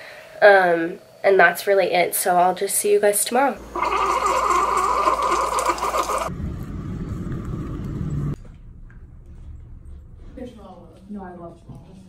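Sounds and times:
hot water hissing: 2.1s - 6.3s
coffee maker pump humming: 3.4s - 6.3s
low rumble: 6.3s - 10.9s.

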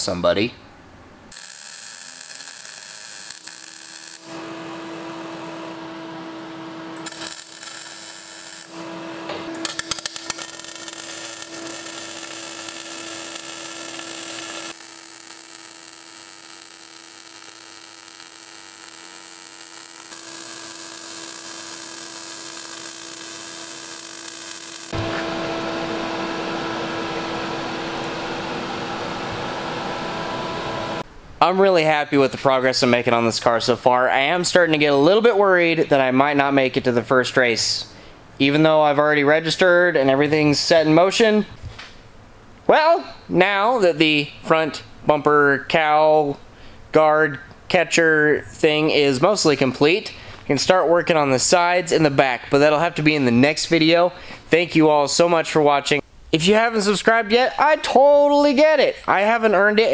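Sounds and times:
arc welding: 1.3s - 25.1s.

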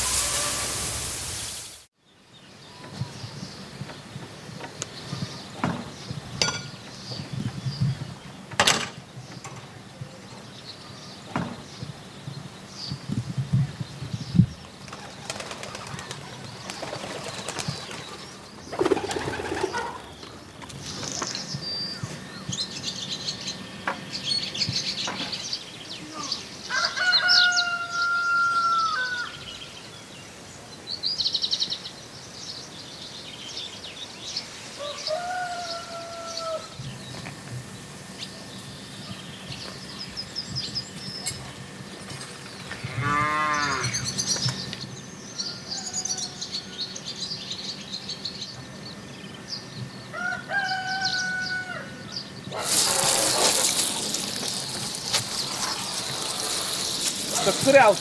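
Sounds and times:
wavering pulsing animal call: 0.0s - 1.0s, 34.8s - 37.0s
small birds chirping: 1.4s - 28.0s, 29.2s - 58.0s
drawn-out animal calls: 52.6s - 58.0s.

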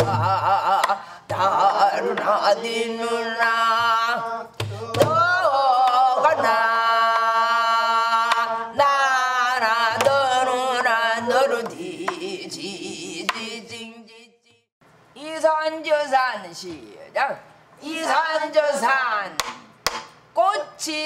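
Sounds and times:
traditional vocal singing: 0.0s - 14.7s, 17.8s - 19.7s.

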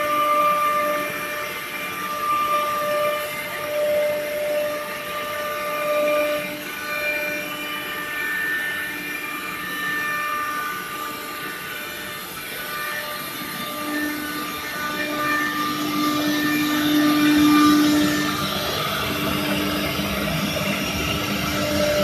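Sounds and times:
router spindle whine: 0.0s - 22.0s
wood cutting noise: 0.0s - 22.0s.

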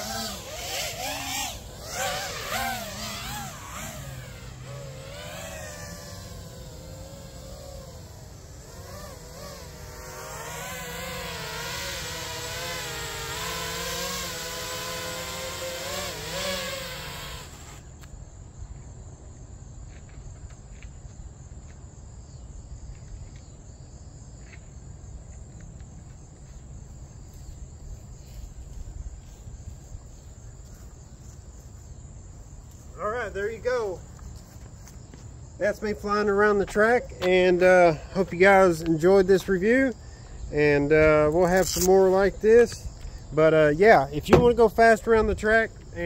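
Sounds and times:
drone motors whining: 0.0s - 18.1s
faint insect chirping: 0.0s - 46.0s.

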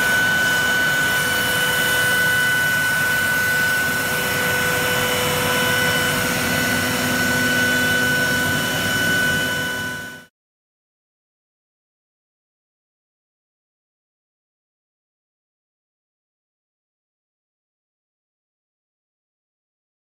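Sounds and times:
cnc router spindle whine: 0.0s - 10.3s.

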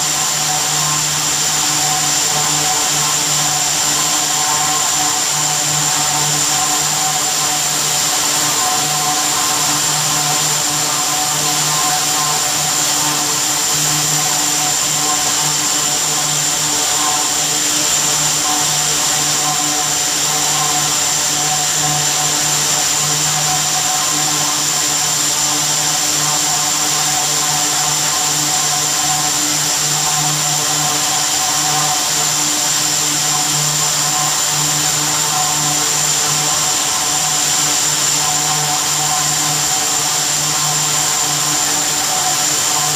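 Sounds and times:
thread spinning machine droning: 0.0s - 42.9s.

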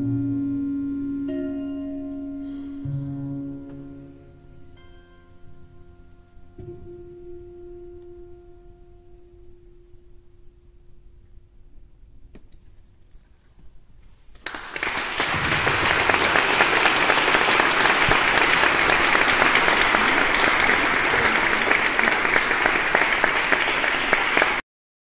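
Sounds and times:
audience applauding: 14.3s - 24.6s.

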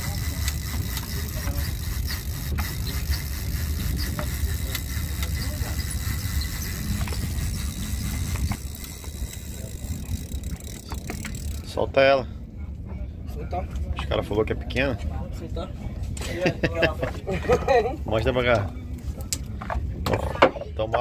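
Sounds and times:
fishing reel clicks: 0.0s - 11.7s.

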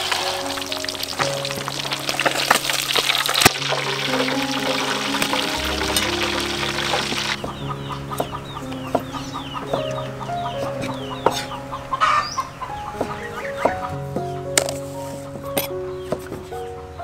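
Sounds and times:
soft background music: 0.0s - 17.0s
chickens clucking: 7.2s - 14.3s.

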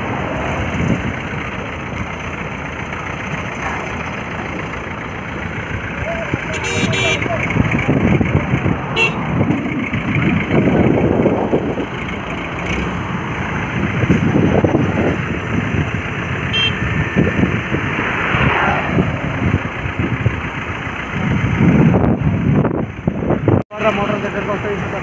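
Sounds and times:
heavy truck engines running: 0.0s - 25.0s
road traffic passing: 0.0s - 25.0s.

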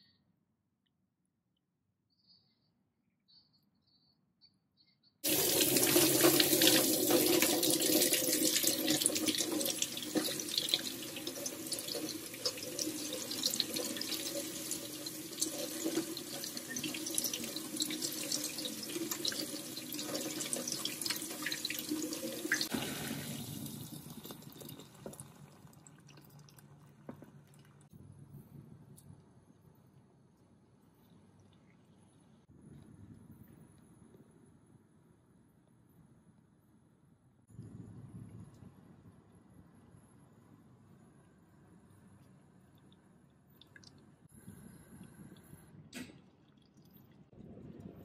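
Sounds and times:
water pouring into ceramic dish: 5.2s - 27.9s.

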